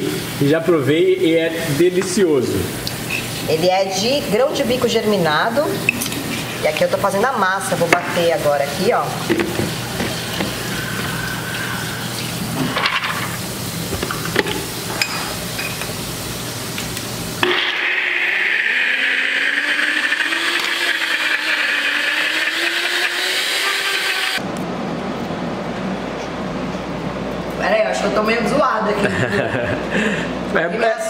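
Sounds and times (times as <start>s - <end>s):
blender motor grinding: 17.4s - 24.4s.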